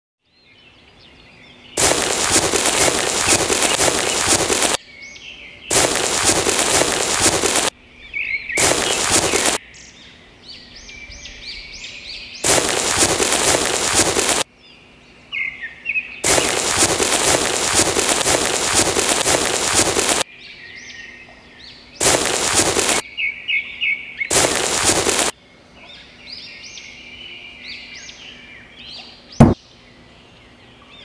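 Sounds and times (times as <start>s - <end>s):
birds chirping: 0.2s - 31.0s
sand poured onto a board: 1.8s - 4.8s, 5.7s - 7.7s, 8.6s - 9.6s, 12.4s - 14.4s, 16.2s - 20.2s, 22.0s - 23.0s, 24.3s - 25.3s.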